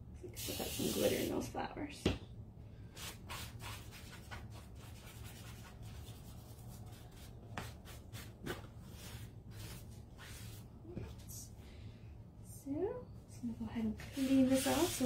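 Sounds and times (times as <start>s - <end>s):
low steady hum: 0.0s - 15.0s
damp wipe rubbing strokes: 14.1s - 15.0s.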